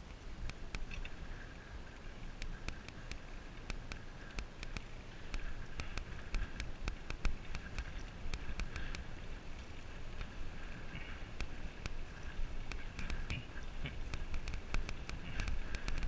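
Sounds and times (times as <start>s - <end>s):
wind rumbling over camera: 0.0s - 16.0s
sharp clicks and rattles: 12.6s - 16.0s.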